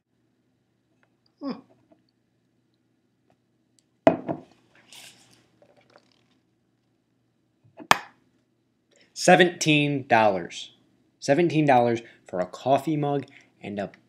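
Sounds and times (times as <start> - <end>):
items knocking and clattering: 4.1 - 4.5.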